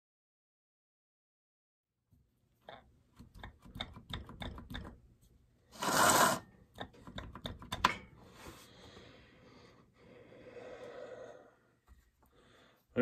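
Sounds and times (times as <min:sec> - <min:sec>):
short loud scrape: 0:05.7 - 0:06.5.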